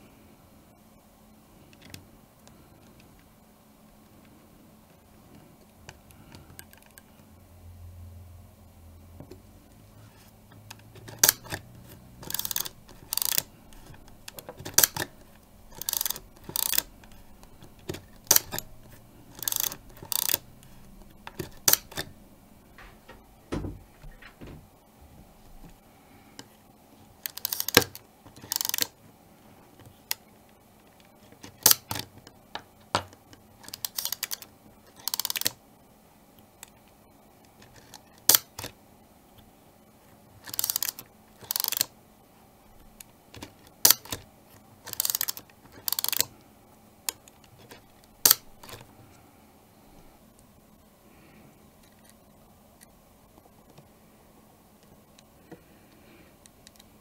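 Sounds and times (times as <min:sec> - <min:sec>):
film advance lever ratcheting: 0:10.7 - 0:23.2, 0:27.2 - 0:28.9, 0:31.4 - 0:32.0, 0:33.6 - 0:35.6, 0:37.7 - 0:38.7, 0:40.4 - 0:41.9, 0:43.4 - 0:44.2, 0:44.9 - 0:46.3, 0:47.2 - 0:48.8
camera shutter clicks: 0:12.2 - 0:20.8.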